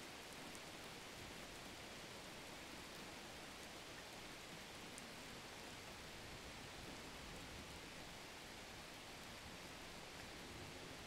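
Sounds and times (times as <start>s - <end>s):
faint steady hiss: 0.0s - 11.0s.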